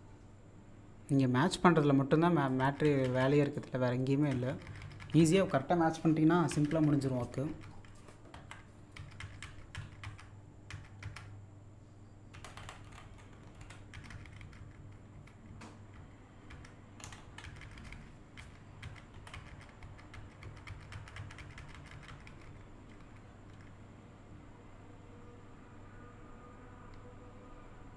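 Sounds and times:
low electrical hum: 0:00.0 - 0:27.9
keyboard keys clicking: 0:02.5 - 0:11.3, 0:12.3 - 0:23.8.

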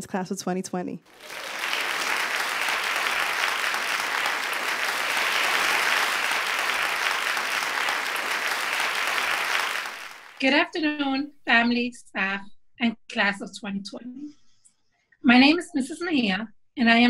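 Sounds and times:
applause: 0:01.1 - 0:10.6.

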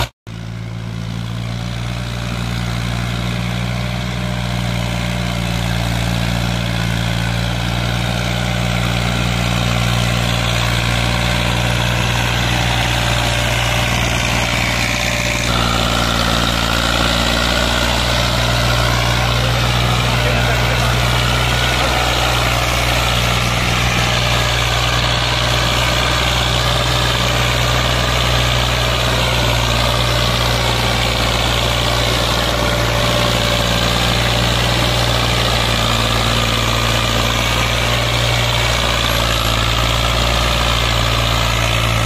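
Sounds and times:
tractor diesel engine under load: 0:00.0 - 0:42.0.

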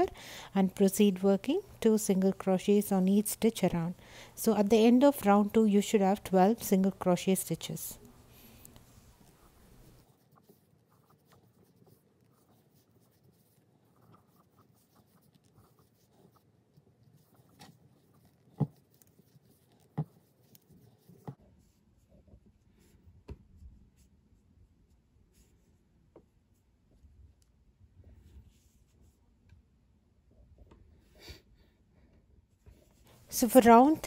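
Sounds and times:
crochet hook rustling yarn: 0:00.0 - 0:24.1, 0:32.5 - 0:34.0.

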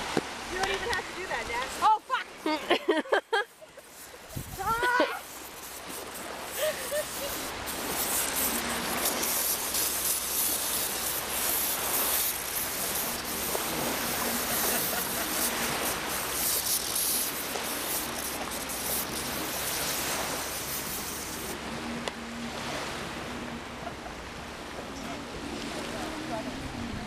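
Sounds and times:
lake surf: 0:00.0 - 0:27.0
wind: 0:00.0 - 0:27.0.

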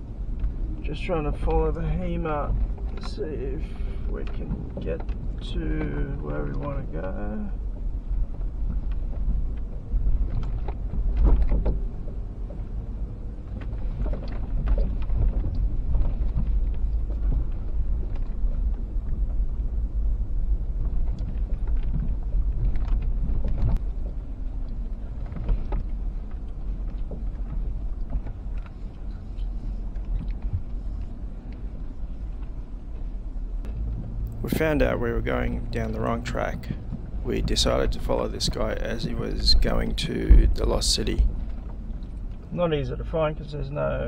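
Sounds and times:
engine and tyres rumbling: 0:00.0 - 0:44.0
knocks and rattles over bumps: 0:04.0 - 0:19.6.

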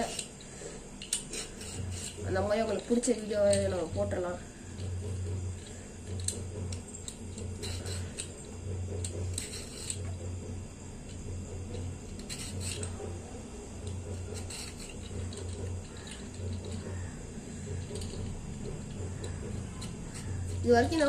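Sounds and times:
peeler scraping vegetable skin: 0:00.0 - 0:04.0, 0:11.3 - 0:21.0
low pulsing hum: 0:00.0 - 0:21.0.

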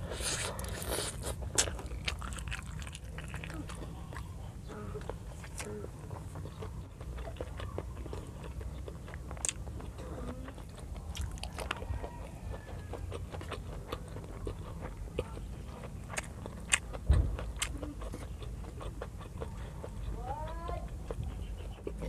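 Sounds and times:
chewing and mouth clicks: 0:00.0 - 0:22.0
low thump: 0:17.0 - 0:17.4.

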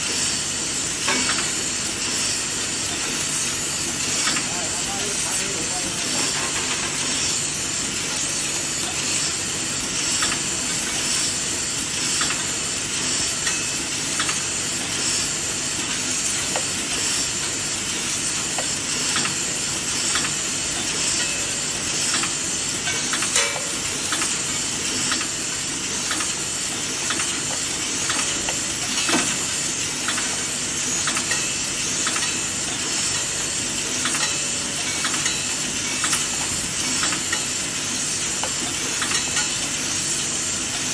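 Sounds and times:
machine clicking: 0:04.1 - 0:05.4, 0:12.1 - 0:12.5, 0:18.5 - 0:21.3, 0:22.0 - 0:26.4, 0:27.0 - 0:39.7.

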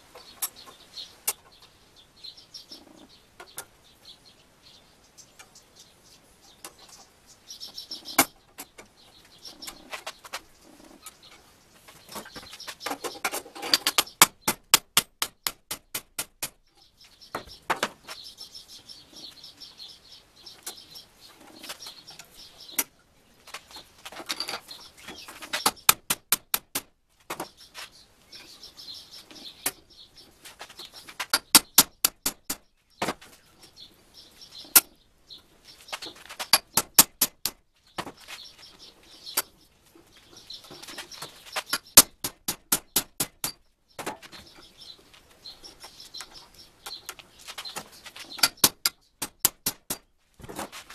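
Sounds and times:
birds chirping: 0:00.0 - 0:50.9
steel rods clicking and creaking: 0:12.1 - 0:18.1, 0:21.4 - 0:27.5, 0:30.6 - 0:33.2, 0:34.6 - 0:35.0, 0:36.0 - 0:38.1, 0:40.6 - 0:44.8, 0:46.2 - 0:50.9.

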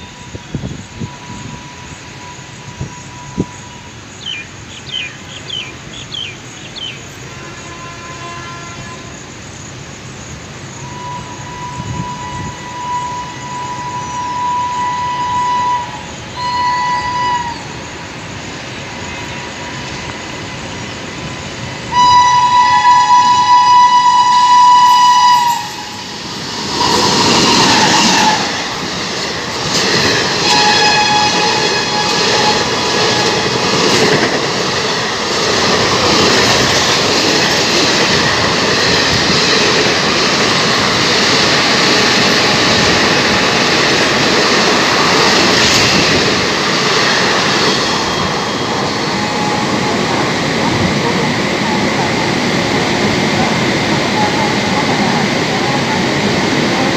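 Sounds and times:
train horn: 0:07.2 - 0:09.3, 0:10.8 - 0:17.8, 0:21.9 - 0:26.2, 0:26.8 - 0:28.8, 0:30.4 - 0:33.9, 0:47.9 - 0:50.2
train wheels clattering on rails: 0:24.4 - 0:56.9.

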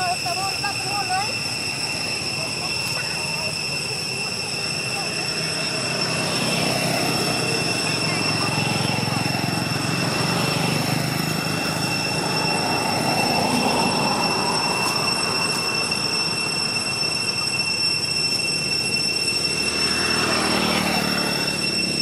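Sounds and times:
motorbike passing: 0:00.0 - 0:17.4, 0:19.3 - 0:22.0
steady high-pitched whine: 0:00.0 - 0:22.0
vehicle passing: 0:05.0 - 0:17.0, 0:19.5 - 0:22.0.

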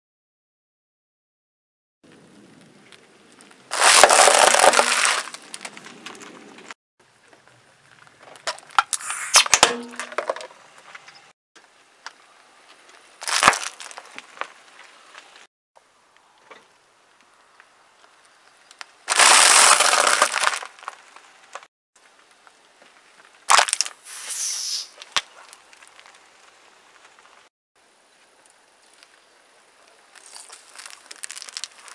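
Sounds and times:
plastic bottle squashed: 0:03.7 - 0:05.6, 0:08.4 - 0:10.5, 0:13.2 - 0:14.1, 0:19.1 - 0:20.8, 0:23.5 - 0:24.0
dry noodles crunching: 0:03.7 - 0:05.8, 0:13.2 - 0:14.5, 0:19.1 - 0:21.0, 0:30.0 - 0:31.9
car tyre crushing objects: 0:03.7 - 0:06.7, 0:13.2 - 0:14.8, 0:19.1 - 0:21.7, 0:23.4 - 0:24.0, 0:30.0 - 0:31.9.

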